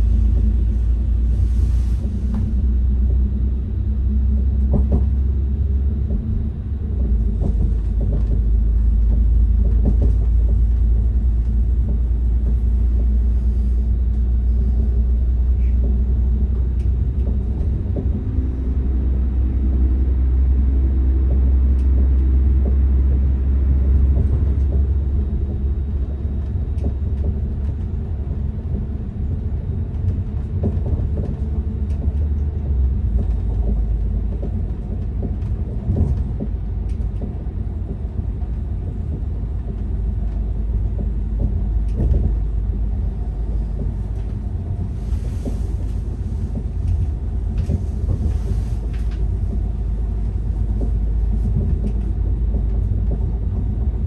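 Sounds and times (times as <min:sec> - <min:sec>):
train engine and wheels rumble: 0:00.0 - 0:54.0.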